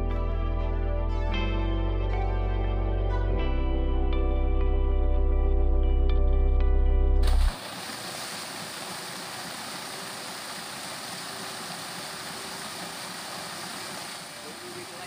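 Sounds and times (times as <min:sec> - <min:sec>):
paddle wheels splashing water: 0:07.2 - 0:15.0.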